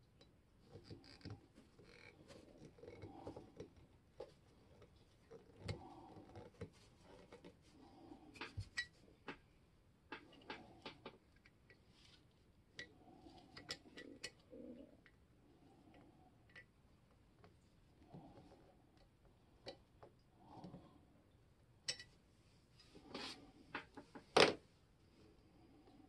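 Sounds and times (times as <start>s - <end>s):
soft handling noise: 0.1s - 9.6s.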